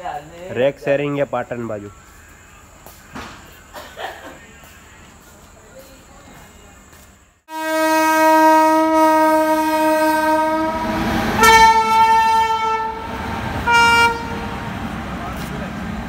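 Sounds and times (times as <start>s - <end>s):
locomotive horn: 7.5s - 14.8s
locomotive rumbling past: 7.5s - 16.0s.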